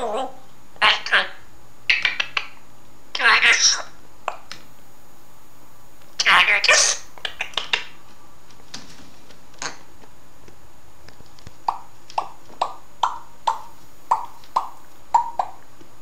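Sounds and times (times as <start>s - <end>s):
parrot popping clicks: 7.2s - 7.9s.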